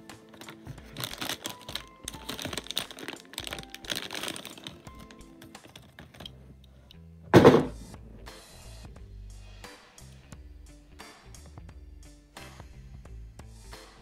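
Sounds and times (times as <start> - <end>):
background music: 0.0 - 14.0
plastic packaging crinkling: 0.2 - 6.3
toy car clicks and rustles: 0.4 - 6.4
loud thump: 7.3 - 7.8.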